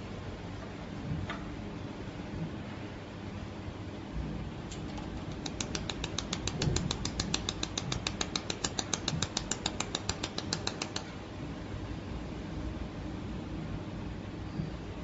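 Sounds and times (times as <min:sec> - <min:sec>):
laser welder snapping ticks: 0:05.2 - 0:11.1.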